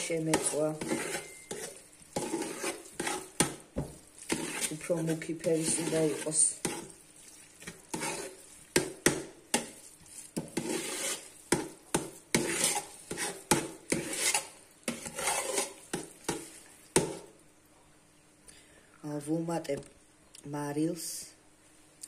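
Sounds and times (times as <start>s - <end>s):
spoon scraping through rice: 0.0s - 17.3s.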